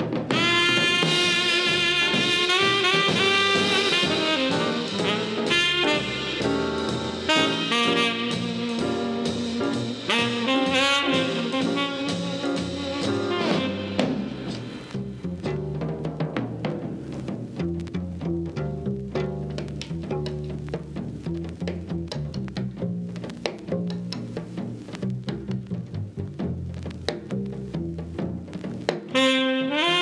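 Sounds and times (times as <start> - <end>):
lower accompaniment: 0.0 - 30.0
sustained lead melody: 0.4 - 15.9.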